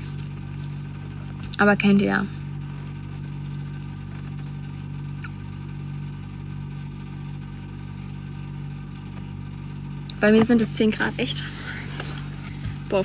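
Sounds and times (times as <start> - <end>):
low motor hum: 0.0 - 13.0.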